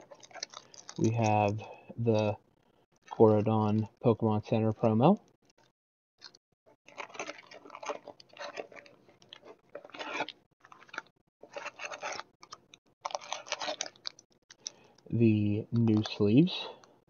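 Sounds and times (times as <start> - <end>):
plastic and foil packaging crinkling: 0.0 - 1.7, 6.2 - 15.1.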